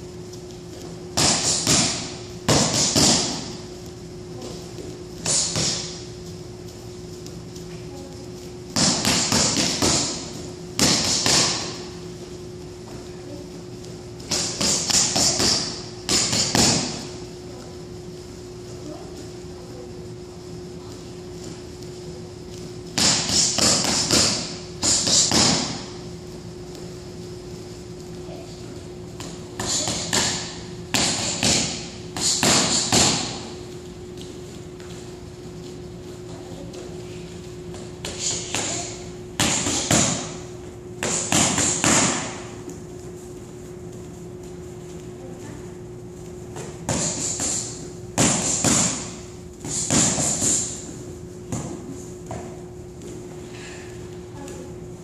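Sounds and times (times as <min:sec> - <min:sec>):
boxing gloves punching mitts: 0:01.1 - 0:03.7, 0:05.2 - 0:06.1, 0:08.7 - 0:12.0, 0:14.2 - 0:17.2, 0:22.9 - 0:26.0, 0:29.2 - 0:33.6, 0:37.7 - 0:42.7, 0:46.5 - 0:50.9.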